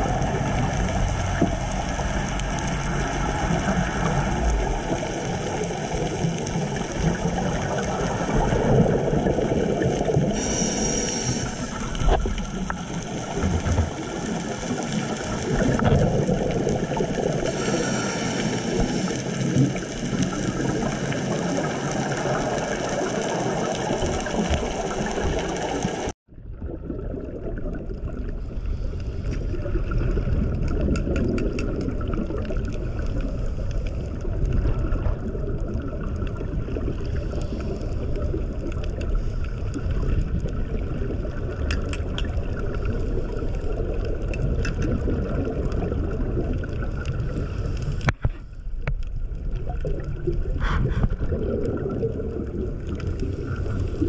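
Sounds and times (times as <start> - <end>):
low rumble of moving water: 0.0 - 54.0.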